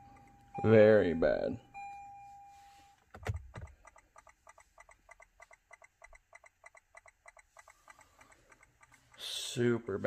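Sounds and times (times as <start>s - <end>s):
turn signal clicking rapidly: 3.2s - 9.4s.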